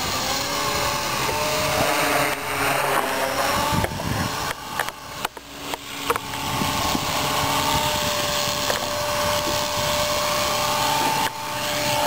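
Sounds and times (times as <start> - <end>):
rc helicopter motor whine: 0.0 - 12.0
rotor wash hiss: 0.0 - 12.0.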